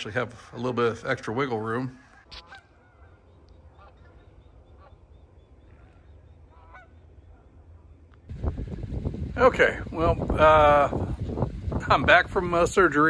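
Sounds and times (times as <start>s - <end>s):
distant geese honking: 2.0s - 13.0s
low steady rumble: 3.9s - 13.0s.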